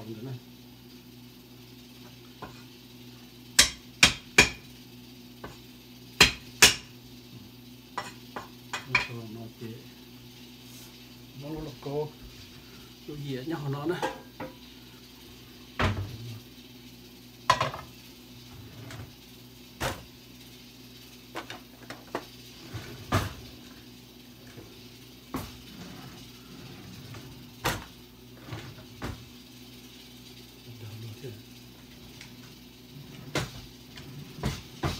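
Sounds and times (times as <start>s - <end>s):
cupboards opening and shutting: 22.6s - 23.4s, 25.3s - 29.2s, 33.1s - 34.9s.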